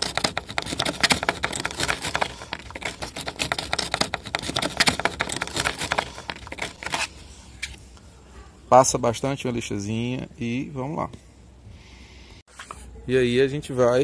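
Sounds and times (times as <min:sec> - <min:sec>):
sandpaper scratching plastic: 0:00.0 - 0:07.8.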